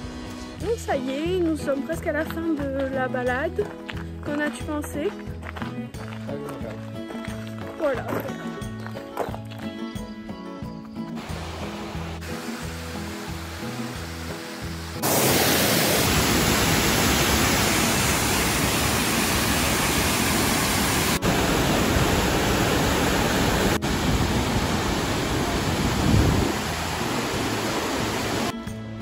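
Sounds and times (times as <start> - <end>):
soft background music: 0.0 - 15.0
waterfall rushing: 11.2 - 28.5.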